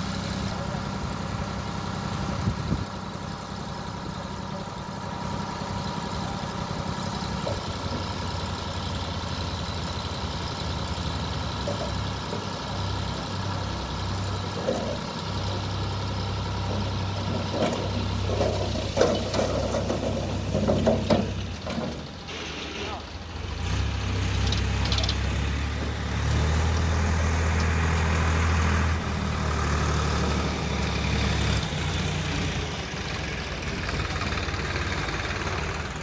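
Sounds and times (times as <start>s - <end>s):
tractor diesel engine running: 0.0s - 36.0s
soil sliding off trailer bed: 16.7s - 23.1s.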